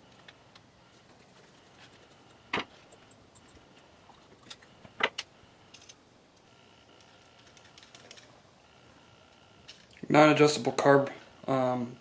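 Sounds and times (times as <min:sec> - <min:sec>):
small metal parts clicking: 0:05.7 - 0:06.0, 0:07.0 - 0:08.3.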